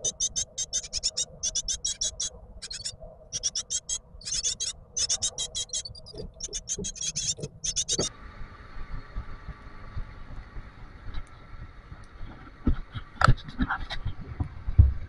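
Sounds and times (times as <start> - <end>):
nestlings chirping: 0.0 - 8.1.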